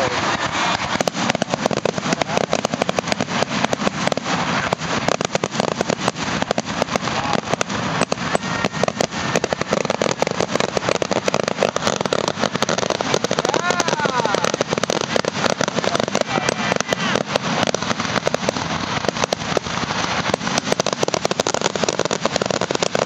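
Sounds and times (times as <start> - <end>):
fireworks bursting and crackling: 0.0 - 23.0.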